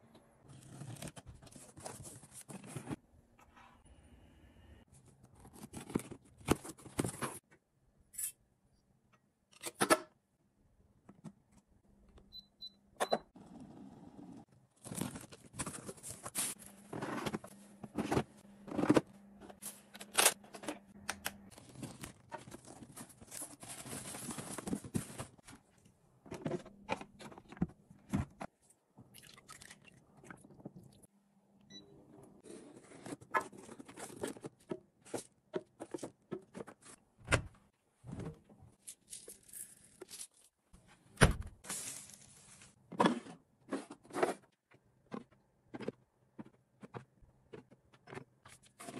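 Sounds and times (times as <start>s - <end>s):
crinkling rustles: 21.5s - 25.7s.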